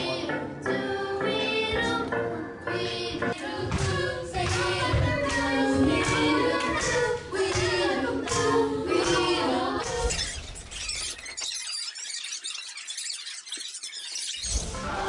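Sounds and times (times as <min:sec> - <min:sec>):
song with sung vocals and beat: 0:00.0 - 0:10.3.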